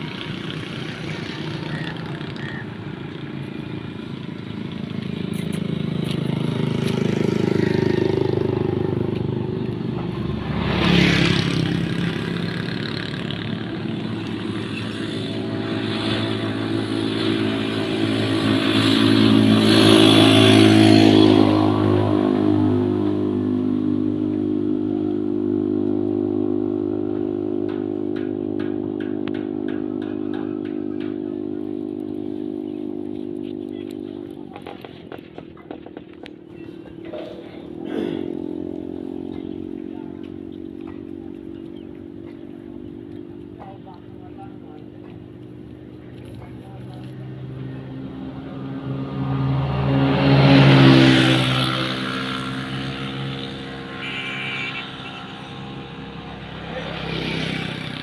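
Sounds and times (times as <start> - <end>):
motor vehicle engine: 0.0 - 58.0.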